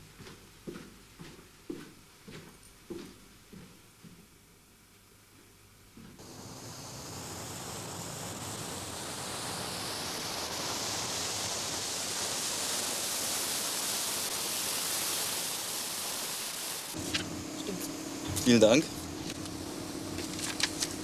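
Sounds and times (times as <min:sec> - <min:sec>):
car tyre and engine noise: 0:06.2 - 0:21.0.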